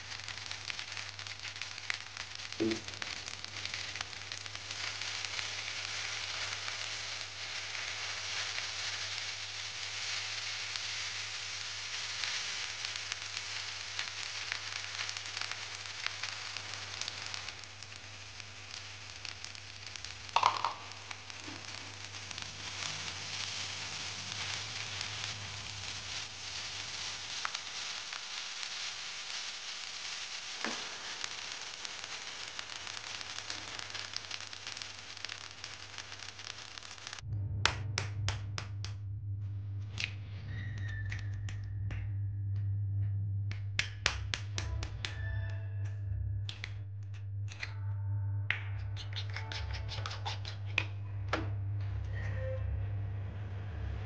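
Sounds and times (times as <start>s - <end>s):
food sizzling in frying pan: 0.0s - 37.2s
low hum: 37.2s - 54.0s.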